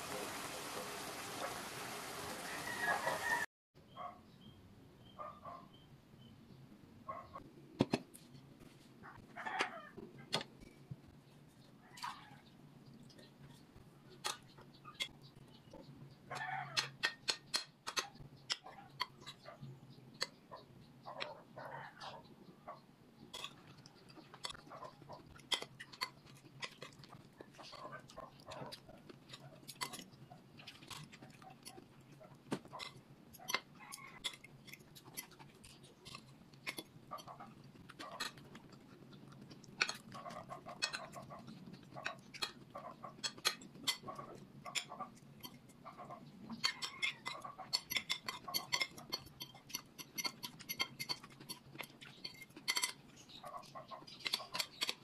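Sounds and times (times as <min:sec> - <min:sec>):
cutlery clinking on ceramic plate: 0:46.6 - 0:53.0.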